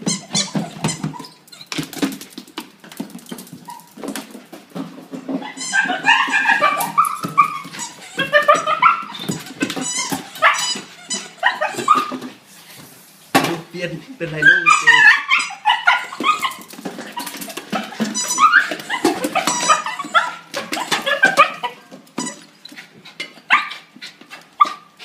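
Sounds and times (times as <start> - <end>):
dog whining and yipping: 0.0 - 1.8, 3.6 - 4.0, 5.3 - 12.2, 14.4 - 23.9, 24.6 - 25.0
claws scrabbling on tile floor: 0.4 - 12.9.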